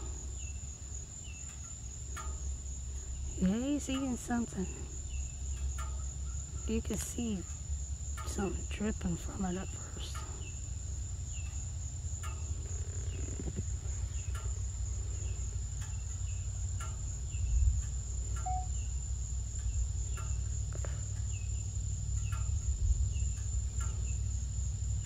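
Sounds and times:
high insect chorus: 0.0 - 25.0
low steady rumble: 0.0 - 25.0
short chirps: 18.4 - 18.7.

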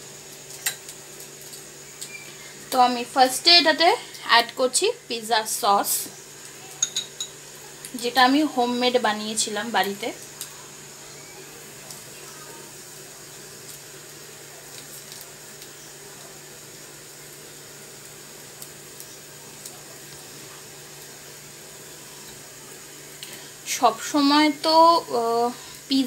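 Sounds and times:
food sizzling in pan: 0.0 - 26.0
metal spoon tapping and scraping: 6.8 - 7.4.

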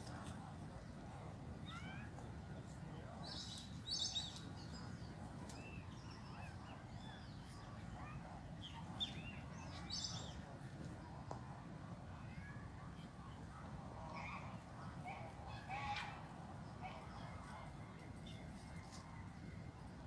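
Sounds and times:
small birds chirping: 0.0 - 11.3.

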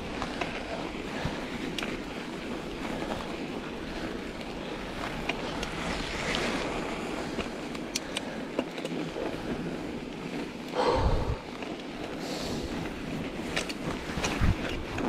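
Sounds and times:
bike tyres rolling on snow: 0.0 - 15.0
wind on microphone: 10.8 - 15.0.

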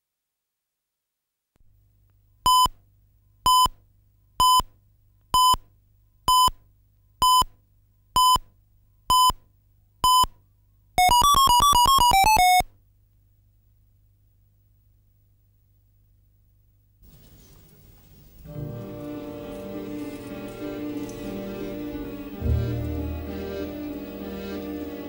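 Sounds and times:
rapid warbling beeps: 11.0 - 12.6
short electronic beeps: 11.0 - 12.6.

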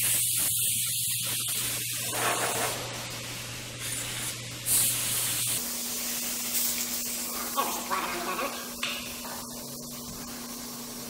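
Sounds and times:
airbrush spraying hissing bursts: 0.0 - 7.5.

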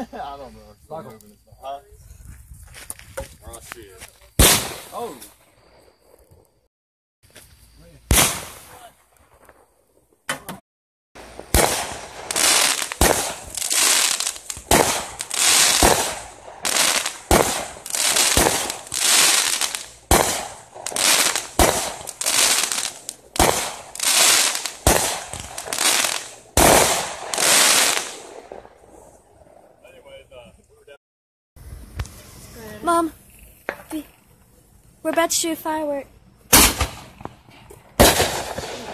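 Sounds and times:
fireworks bang: 4.4 - 5.4, 8.1 - 9.6, 11.2 - 29.0, 36.5 - 38.9
firework shots with hiss: 4.4 - 5.5, 7.3 - 9.6, 11.2 - 29.1, 36.5 - 38.9.

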